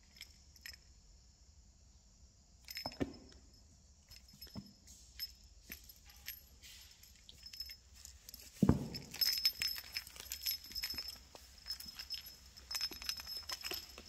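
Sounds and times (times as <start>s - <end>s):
thin high ringing: 2.6s - 14.0s.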